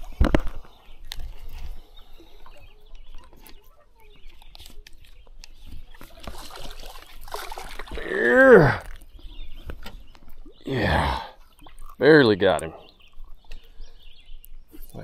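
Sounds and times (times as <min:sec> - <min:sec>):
fish splashing at the surface: 0:06.0 - 0:09.0
person exclaiming ohh: 0:08.0 - 0:08.8, 0:10.7 - 0:11.3.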